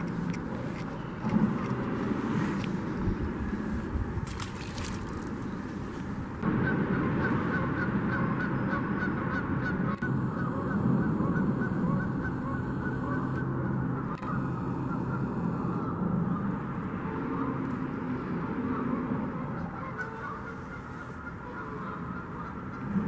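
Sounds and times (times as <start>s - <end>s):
low rushing noise: 0.0s - 19.8s
geese honking: 6.4s - 17.5s, 18.6s - 23.0s.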